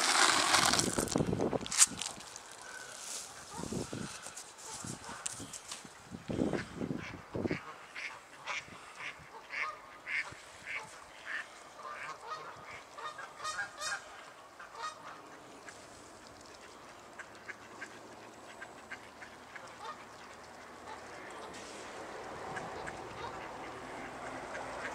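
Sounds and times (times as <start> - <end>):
footsteps in snow: 0.0 - 5.9
geese honking: 7.4 - 15.3, 17.2 - 21.6, 22.5 - 24.9.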